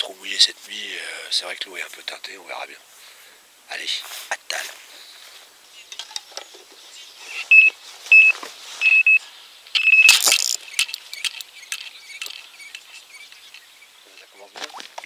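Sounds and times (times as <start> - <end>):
electronic bite alarm beeping: 7.3 - 9.2, 9.8 - 10.5
scattered clicks: 9.7 - 15.0.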